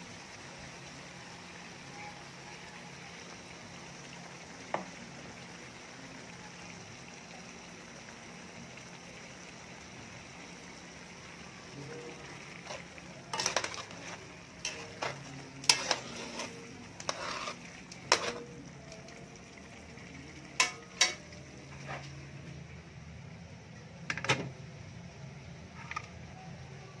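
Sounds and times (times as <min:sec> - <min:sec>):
utensil knocking and scraping a pan: 0:12.6 - 0:18.5.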